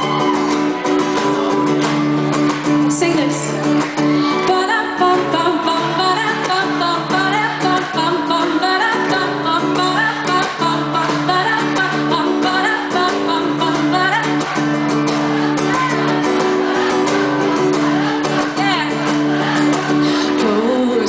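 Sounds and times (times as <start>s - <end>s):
acoustic guitar strumming: 0.0s - 21.0s
person singing: 4.2s - 14.6s, 15.4s - 21.0s.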